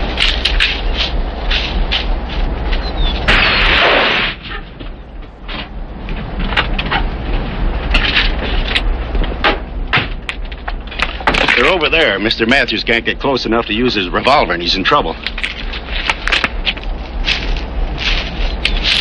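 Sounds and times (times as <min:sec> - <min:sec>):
loud rushing burst: 0:00.0 - 0:04.8
low hum: 0:00.0 - 0:19.0
footsteps running through dry brush: 0:15.7 - 0:19.0.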